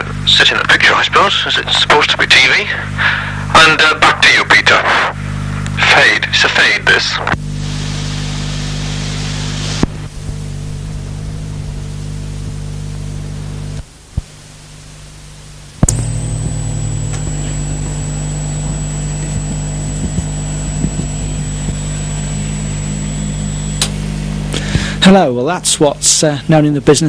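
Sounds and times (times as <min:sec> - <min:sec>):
electrical hum and hiss: 0:00.0 - 0:27.0
sharp click: 0:15.8 - 0:16.1, 0:23.8 - 0:24.6.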